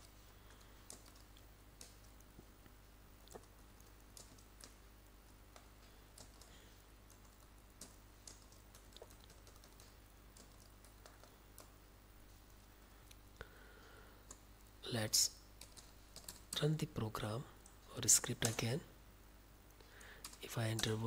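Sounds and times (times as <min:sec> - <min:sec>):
steady low hum: 0:00.0 - 0:21.0
typing on computer keyboard: 0:00.5 - 0:02.3, 0:03.3 - 0:04.8, 0:05.5 - 0:06.5, 0:07.1 - 0:11.8, 0:15.6 - 0:16.6, 0:18.3 - 0:18.7.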